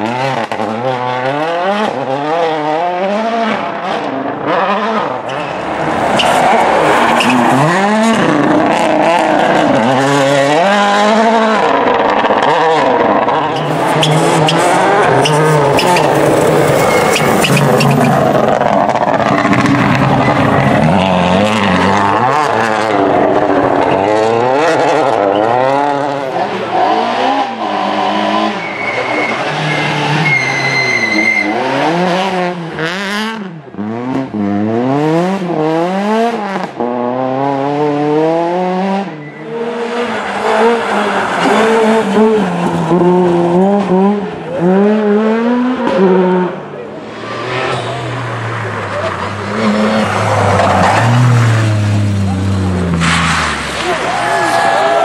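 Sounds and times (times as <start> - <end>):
rally car engines revving: 0.0 - 55.0
tyre squeal: 5.3 - 8.2, 13.5 - 18.4, 28.4 - 31.7, 39.1 - 41.6.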